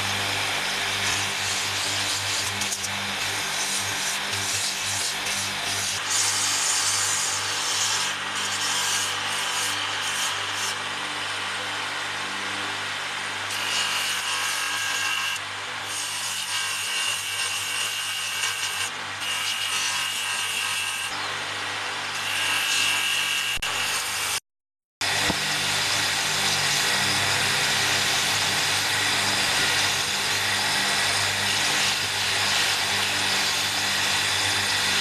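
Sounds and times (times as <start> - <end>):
wood grinding rasp: 0.0 - 10.9, 13.5 - 21.2, 25.0 - 35.0
drum sander motor hum: 0.0 - 15.8, 25.0 - 35.0.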